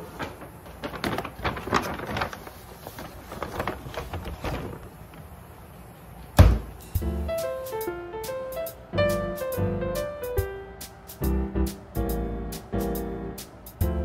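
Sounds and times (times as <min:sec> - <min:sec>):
containers and paper bag rustling: 0:00.0 - 0:05.4
fridge door thump: 0:06.4 - 0:06.8.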